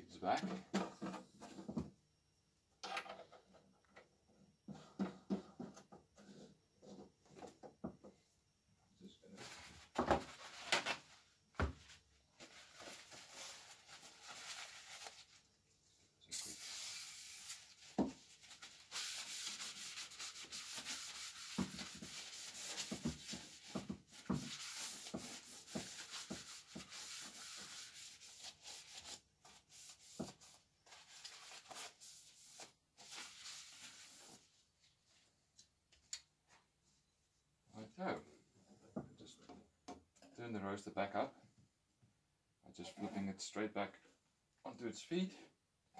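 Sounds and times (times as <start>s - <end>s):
paper towel rubbing on metal: 16.4s - 34.5s.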